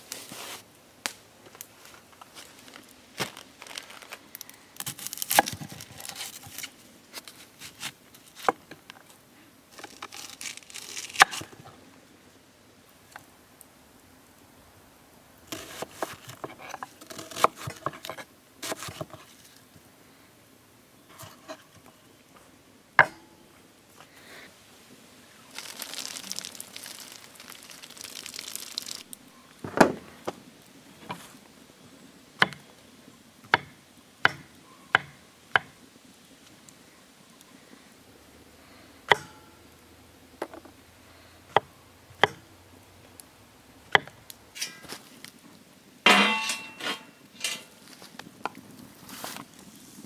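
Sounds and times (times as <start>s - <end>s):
water pouring from a jug: 25.5s - 29.1s.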